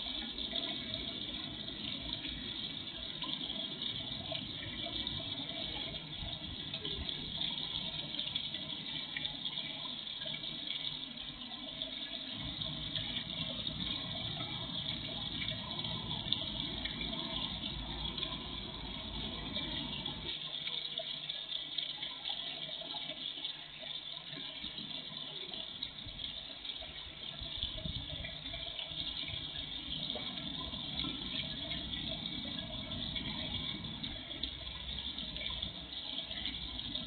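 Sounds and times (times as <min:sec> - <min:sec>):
running splashing water: 0:00.0 - 0:37.0.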